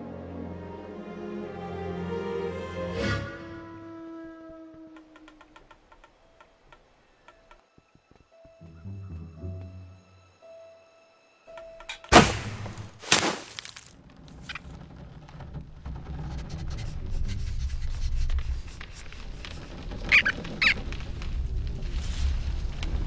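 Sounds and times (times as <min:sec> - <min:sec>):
low rumble: 0:14.0 - 0:23.0
high cartoon squeaks: 0:19.4 - 0:20.8.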